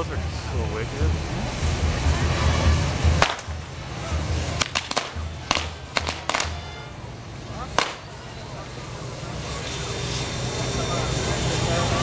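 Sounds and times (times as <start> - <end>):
firecrackers cracking: 3.0 - 6.9, 7.6 - 8.4
music with thumping beat: 4.6 - 6.6.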